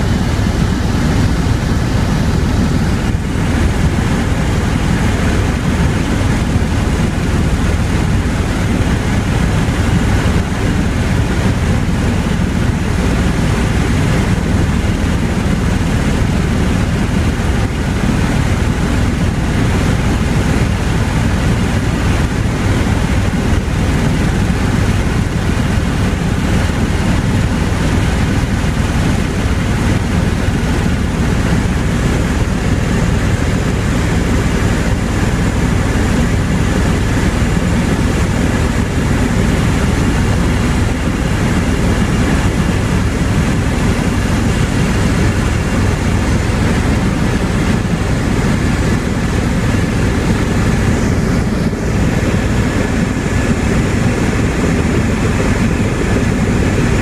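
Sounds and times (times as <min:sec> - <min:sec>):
helicopter engine and rotor drone: 0:00.0 - 0:57.0.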